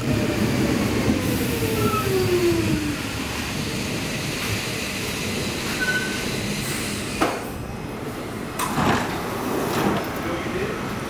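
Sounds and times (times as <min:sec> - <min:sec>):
subway train running: 0:00.0 - 0:11.0.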